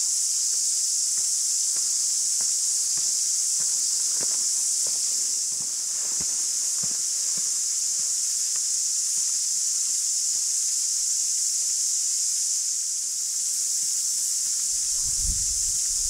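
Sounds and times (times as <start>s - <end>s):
footsteps on dirt track: 0.0s - 9.4s
high-pitched hiss: 0.0s - 16.0s.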